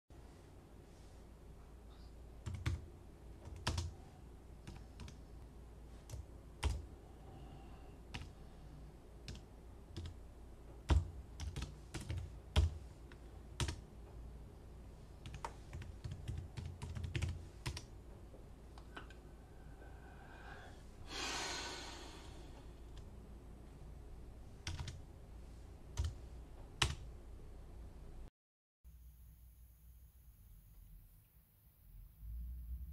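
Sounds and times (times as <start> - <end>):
computer keyboard typing: 2.4 - 3.9, 4.6 - 5.2, 6.0 - 6.8, 8.1 - 8.4, 9.2 - 10.2, 10.8 - 12.8, 13.6 - 13.8, 15.2 - 17.9, 24.6 - 25.0, 25.9 - 26.2, 26.8 - 27.1.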